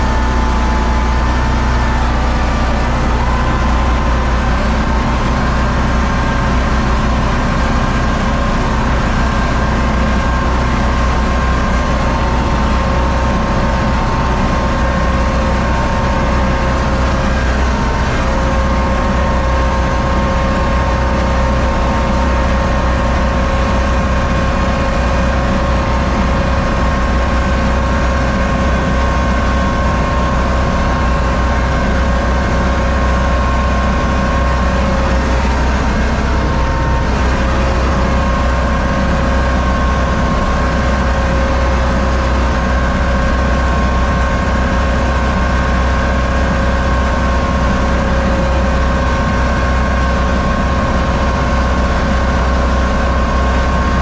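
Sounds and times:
steady whining tones: 0.0s - 54.0s
tractor diesel engine running: 0.0s - 54.0s.

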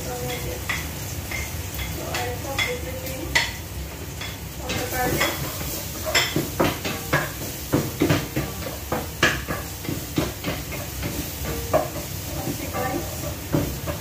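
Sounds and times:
food sizzling: 0.0s - 14.0s
spatula scraping frying pan: 4.2s - 14.0s.

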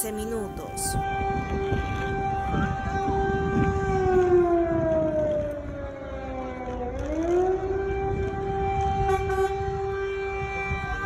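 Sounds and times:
air-raid siren: 0.0s - 11.0s.

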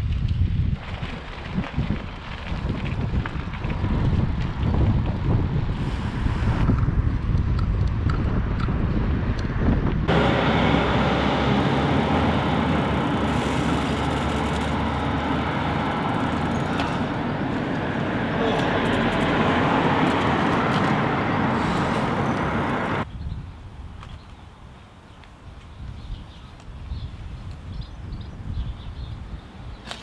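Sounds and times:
wind buffeting microphone: 0.0s - 24.5s, 25.4s - 29.9s
tyres crunching on gravel: 0.8s - 5.2s
passing traffic: 2.0s - 23.1s.

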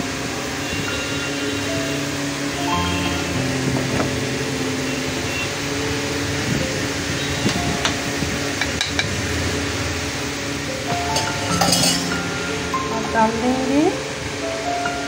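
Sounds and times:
faint background music: 10.7s - 15.0s
steel dishware clicking: 11.1s - 12.2s.

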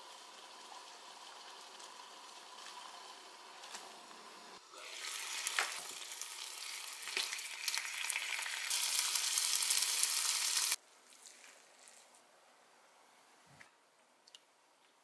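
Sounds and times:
meat sizzling in a frying pan: 4.8s - 10.8s.

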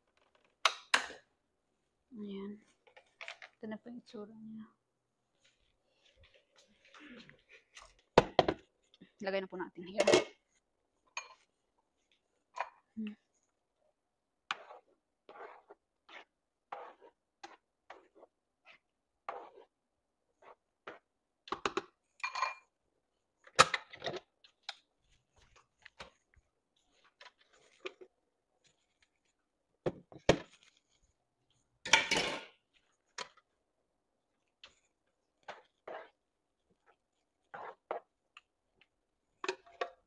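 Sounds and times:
spatula scraping a frying pan: 14.5s - 19.8s, 35.4s - 36.2s, 36.8s - 38.1s
kitchen things clattering: 31.9s - 32.6s.

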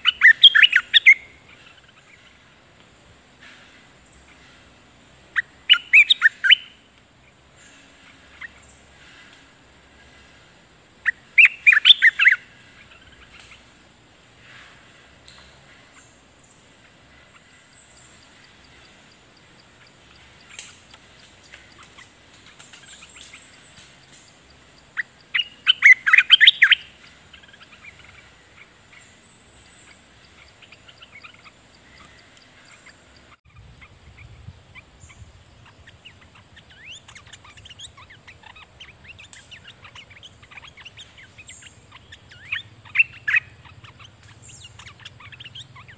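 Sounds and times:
bird chirps: 0.0s - 45.9s
bulbuls chattering calls: 0.0s - 45.9s.

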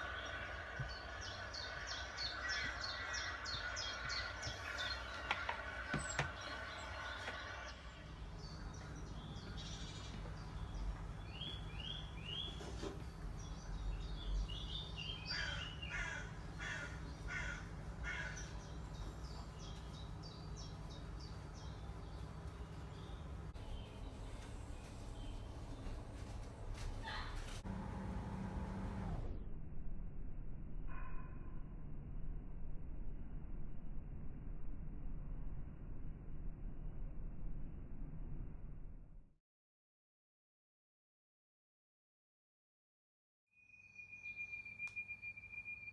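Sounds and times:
birds chirping: 0.0s - 26.1s
low hum: 0.0s - 39.4s.

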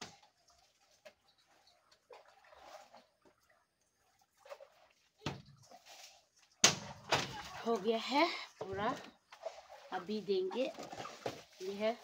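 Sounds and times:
soft scraping and rustling: 5.6s - 6.6s, 8.7s - 12.0s.

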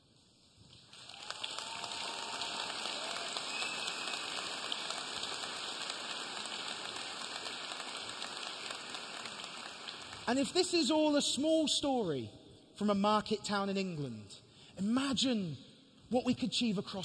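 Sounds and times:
large audience applauding: 0.7s - 10.5s
faint cheers: 1.1s - 4.5s.

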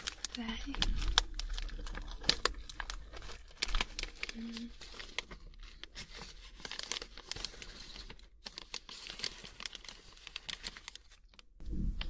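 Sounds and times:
plastic snack packet crinkling: 0.0s - 11.6s.

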